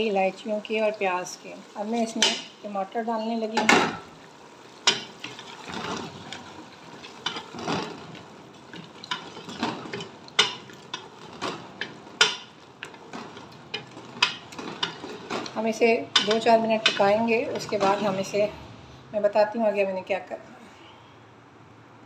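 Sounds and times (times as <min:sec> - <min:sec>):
meat frying in a pot: 0:00.0 - 0:18.5
wooden spatula scraping a pan: 0:04.8 - 0:18.5.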